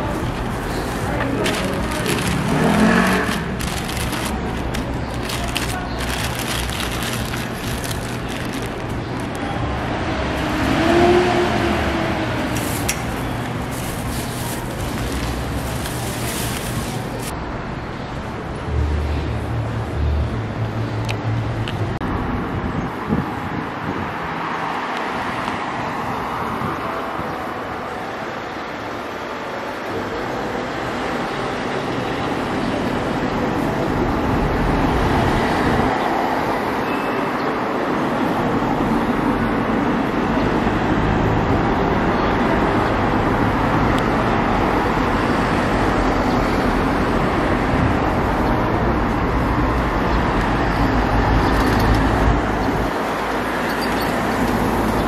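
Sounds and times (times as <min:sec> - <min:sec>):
cars driving past: 0:00.0 - 0:27.0.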